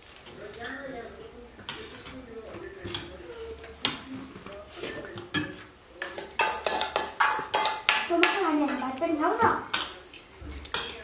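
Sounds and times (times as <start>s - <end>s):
steel spoons and dishes clinking: 4.8s - 9.0s, 10.6s - 11.0s.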